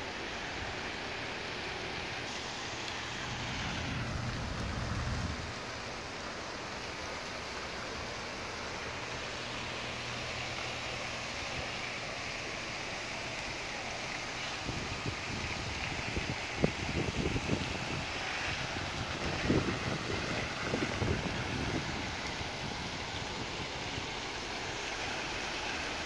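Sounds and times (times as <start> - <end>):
city traffic hum: 0.0 - 19.2
fountain splashing: 0.0 - 26.0
low rumble: 3.0 - 5.9.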